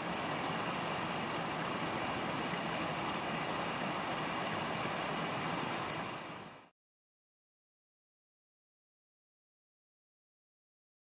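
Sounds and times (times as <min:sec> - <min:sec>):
stream running over rocks: 0:00.0 - 0:06.7.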